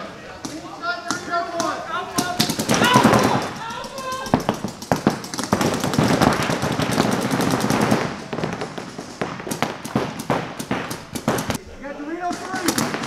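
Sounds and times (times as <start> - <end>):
paintball markers firing: 0.4 - 11.6.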